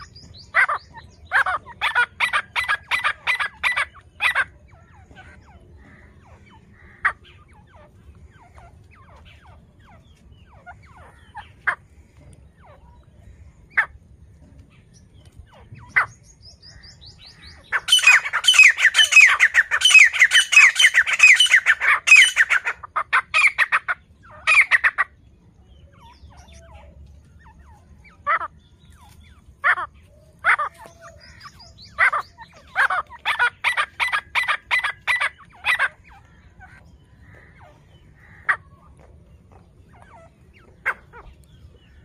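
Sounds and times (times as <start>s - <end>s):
francolin calling: 15.9s - 25.1s.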